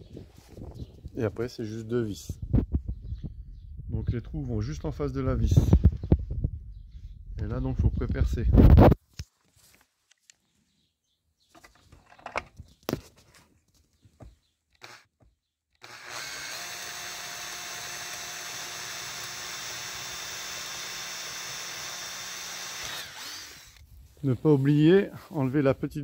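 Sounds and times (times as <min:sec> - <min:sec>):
cordless drill drilling metal: 0:14.7 - 0:15.1, 0:15.7 - 0:23.8.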